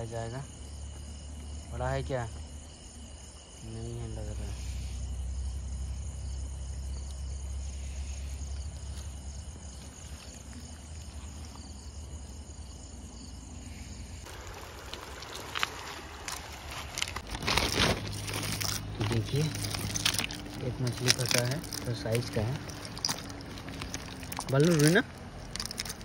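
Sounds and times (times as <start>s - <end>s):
insects chirping: 0.0s - 26.0s
river water flowing: 14.2s - 26.0s
stones clicking: 14.4s - 26.0s.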